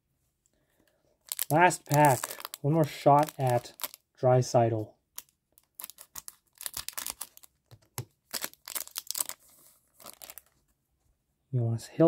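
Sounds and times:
foil wrapper crinkling: 1.2 - 4.0, 5.2 - 10.6.

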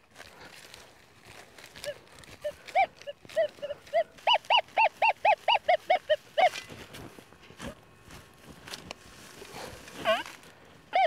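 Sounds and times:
dog whining in high yelps: 1.8 - 6.6.

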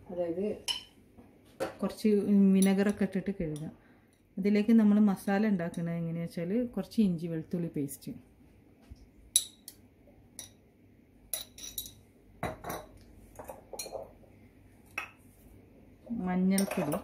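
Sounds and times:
metal spoon clinking on bowl: 9.3 - 9.8, 10.4 - 10.6, 11.3 - 12.9, 16.6 - 17.0.

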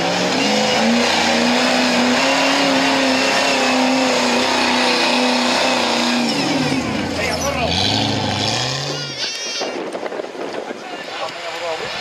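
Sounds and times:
buggy engine revving hard: 0.0 - 9.2.

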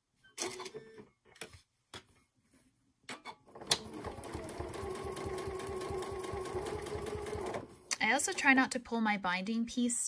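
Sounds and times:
sewing machine stitching: 3.5 - 7.7.

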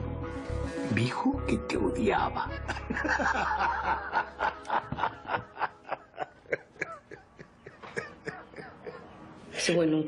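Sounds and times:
person chuckling: 2.6 - 9.2.

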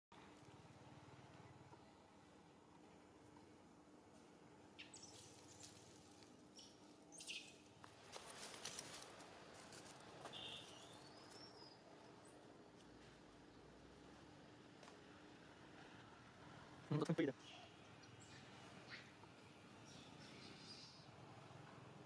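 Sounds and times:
soft clicks and rustles: 7.8 - 10.3.

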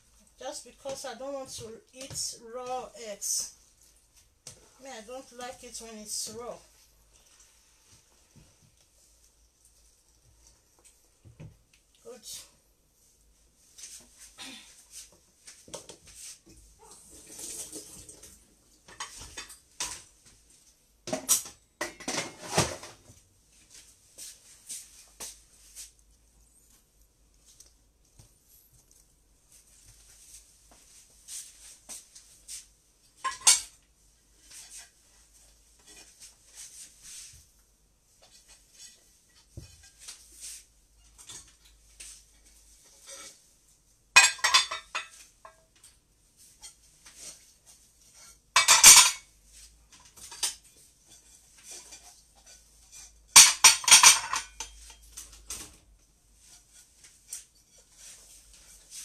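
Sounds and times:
plates clinking and clattering: 33.2 - 33.8, 44.2 - 45.6, 48.5 - 49.3, 50.1 - 55.6.

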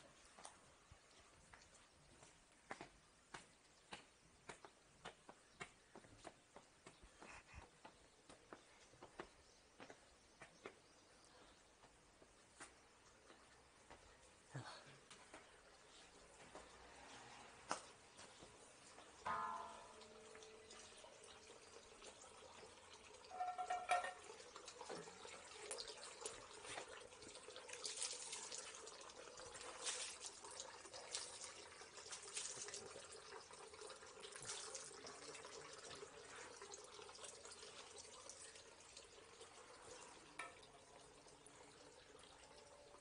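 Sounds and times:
water trickling and splashing: 0.0 - 43.0.

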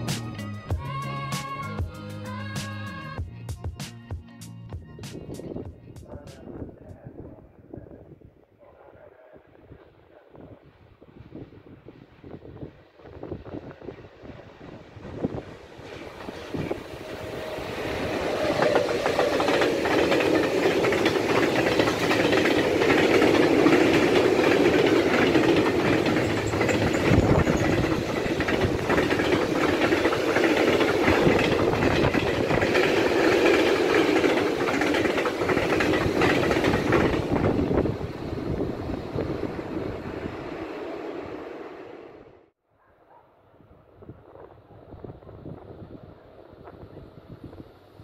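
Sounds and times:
freight train rumbling past: 10.8 - 42.5
wheels clattering over rail joints: 18.2 - 37.7.

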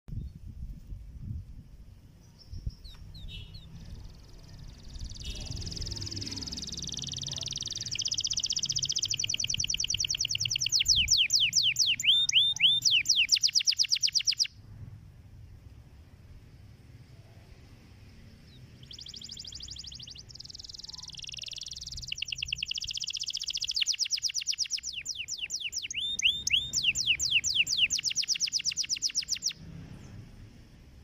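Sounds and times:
canary singing: 2.2 - 14.6, 18.2 - 30.2.

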